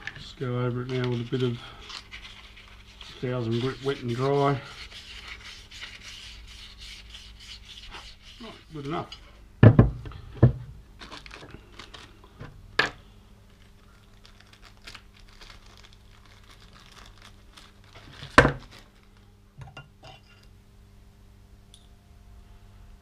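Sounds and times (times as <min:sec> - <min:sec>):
parts knocking on workbench: 0:09.6 - 0:10.7
packaging crinkling and rustling: 0:11.0 - 0:12.5, 0:13.4 - 0:19.4.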